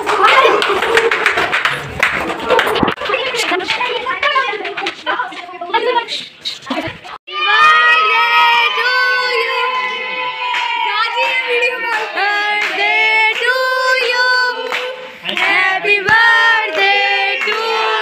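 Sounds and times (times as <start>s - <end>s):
children and women singing: 11.3s - 18.0s.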